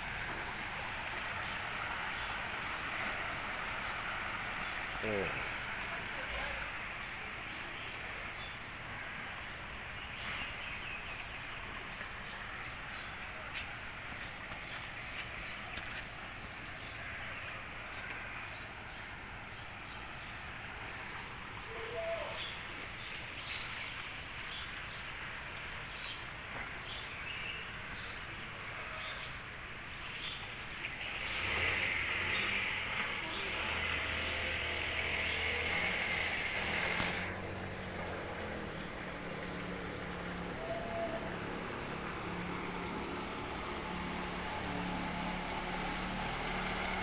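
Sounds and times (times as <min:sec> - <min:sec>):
steady rain hiss: 0:00.0 - 0:47.0
vehicle engine low hum: 0:30.4 - 0:47.0.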